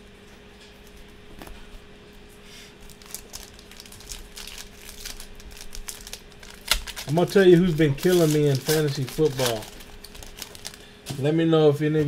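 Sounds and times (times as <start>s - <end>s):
foil wrapper crinkling: 2.8s - 11.3s
plastic card sleeve rustling: 2.8s - 11.3s.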